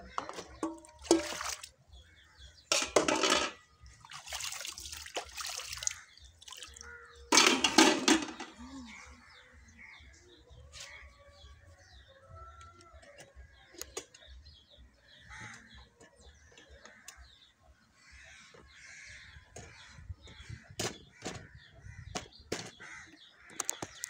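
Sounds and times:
crows cawing: 0:05.7 - 0:07.4, 0:15.2 - 0:15.8, 0:18.0 - 0:20.0, 0:22.7 - 0:23.9.

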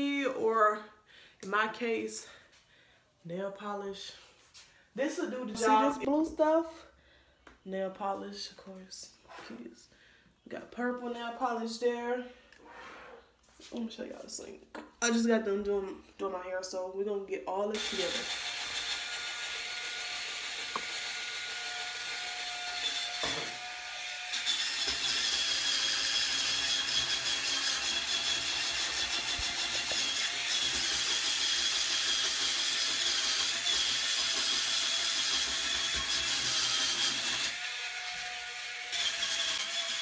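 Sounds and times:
electric spin brush motor whirring: 0:17.8 - 0:40.0.

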